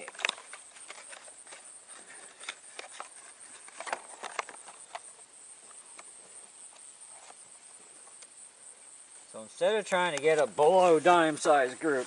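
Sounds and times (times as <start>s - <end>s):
steady high hiss: 0.0s - 12.0s.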